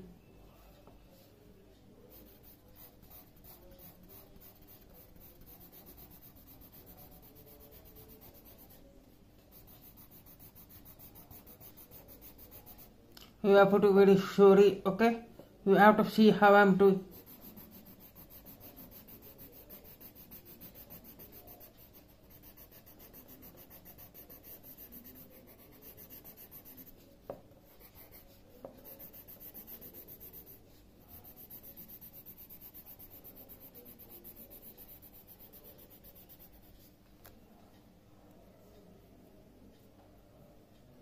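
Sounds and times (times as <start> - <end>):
pencil scratching on paper: 2.1 - 8.9, 9.5 - 12.9, 17.0 - 36.9
pencil tap: 27.2 - 27.4.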